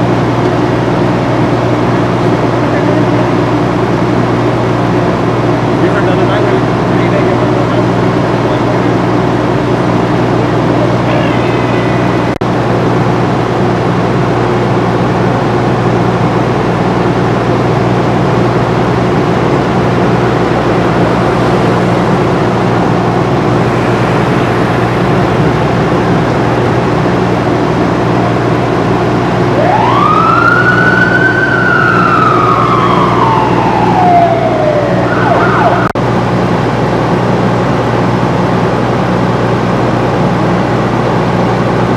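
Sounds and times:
steady engine drone: 0:00.0 - 0:41.9
siren wail: 0:10.9 - 0:12.4, 0:16.9 - 0:36.0.

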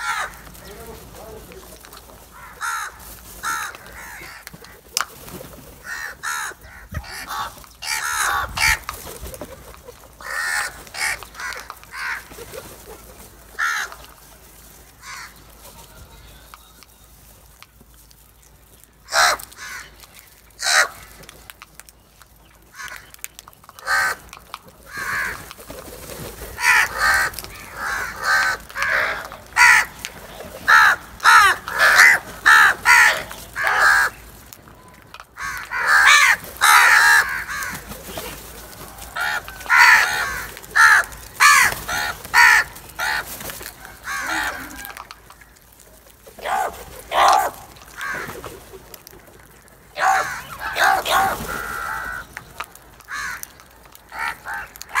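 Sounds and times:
crows cawing: 0:00.0 - 0:16.6, 0:19.0 - 0:21.5, 0:22.7 - 0:25.6, 0:26.4 - 0:55.0.

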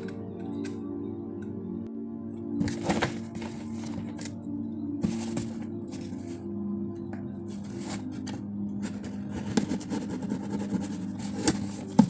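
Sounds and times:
background music with sustained tones: 0:00.0 - 0:12.0
cardboard box rustling and scraping: 0:02.6 - 0:04.3, 0:05.0 - 0:06.4, 0:07.5 - 0:12.0.

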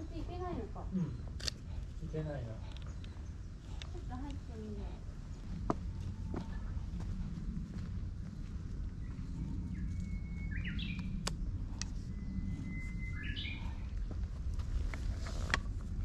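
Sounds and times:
low outdoor rumble: 0:00.0 - 0:16.0
songbird singing whistled song: 0:09.0 - 0:11.2, 0:12.1 - 0:13.9.

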